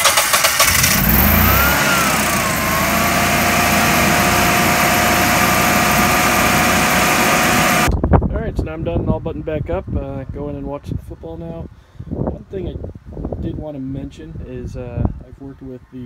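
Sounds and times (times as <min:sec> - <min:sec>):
generator engine starting: 0:00.0 - 0:07.9.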